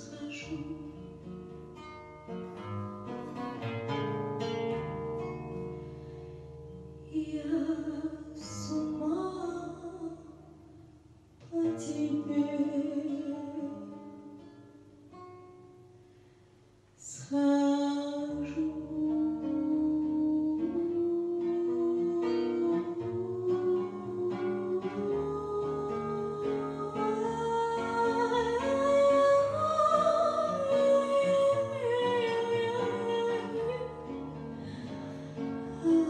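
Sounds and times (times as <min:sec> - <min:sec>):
woman singing into a microphone: 0:00.0 - 0:01.1, 0:07.0 - 0:10.3, 0:11.4 - 0:14.0, 0:17.0 - 0:34.0, 0:35.7 - 0:36.0.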